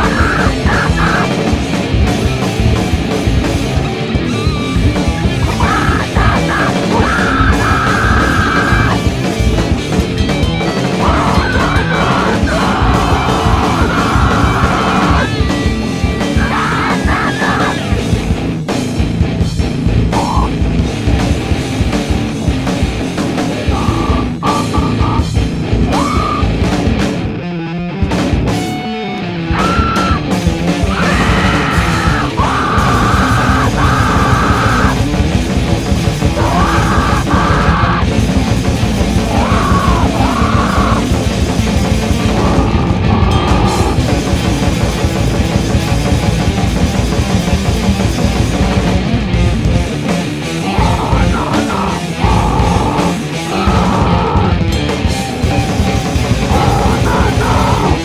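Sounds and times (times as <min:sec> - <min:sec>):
shouted vocals: 0:00.0 - 0:01.4, 0:05.4 - 0:09.1, 0:11.0 - 0:15.5, 0:16.3 - 0:18.0, 0:23.6 - 0:26.6, 0:29.5 - 0:35.0, 0:36.3 - 0:38.1, 0:39.2 - 0:41.2, 0:50.6 - 0:54.7, 0:56.4 - 0:58.0
heavy metal band playing: 0:00.0 - 0:58.0.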